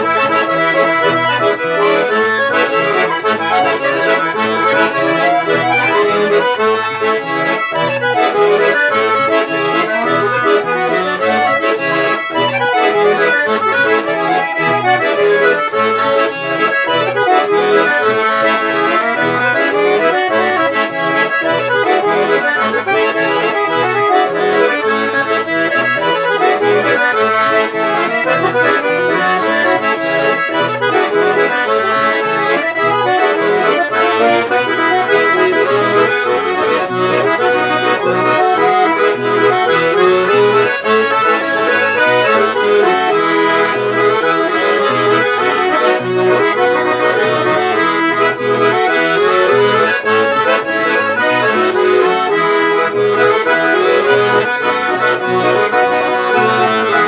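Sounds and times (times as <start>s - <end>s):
accordion duet: 0.0s - 57.0s.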